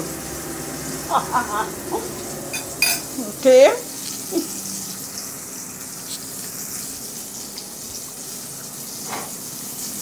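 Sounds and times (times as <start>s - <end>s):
pot sizzling on stove: 0.0s - 10.0s.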